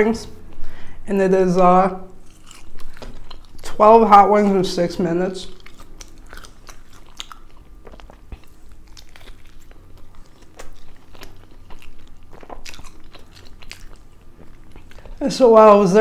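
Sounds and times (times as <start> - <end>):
close chewing: 2.1 - 3.8, 5.4 - 15.6.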